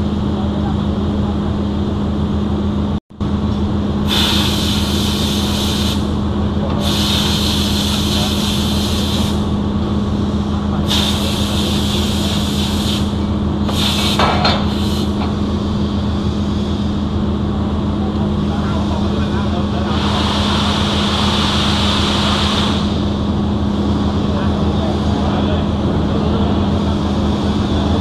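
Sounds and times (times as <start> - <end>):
hissing bursts: 4.1 - 6.1, 6.8 - 9.5, 10.9 - 15.2.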